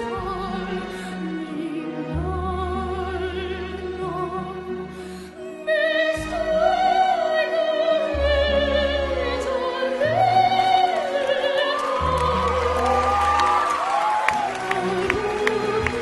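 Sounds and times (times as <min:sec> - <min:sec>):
orchestral accompaniment: 0:00.0 - 0:16.0
girl singing operatically: 0:05.5 - 0:13.8.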